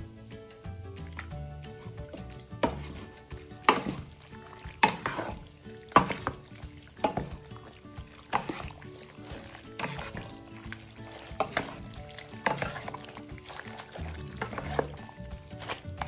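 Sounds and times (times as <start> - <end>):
background music: 0.0 - 16.0
spatula scraping a metal pot: 1.7 - 16.0.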